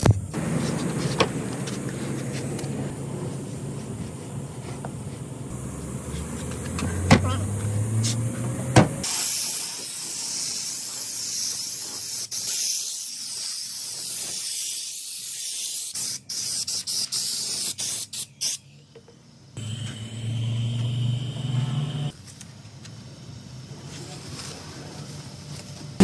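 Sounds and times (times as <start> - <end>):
spray gun hissing: 9.0 - 18.2.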